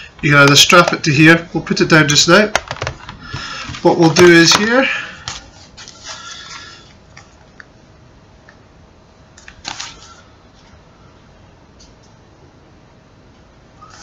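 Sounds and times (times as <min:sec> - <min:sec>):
handling rustles and taps: 0:02.5 - 0:06.2.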